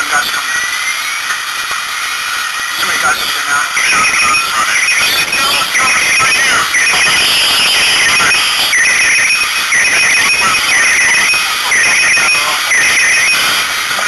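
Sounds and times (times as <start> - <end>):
electronic alarm beeping: 3.7 - 14.0.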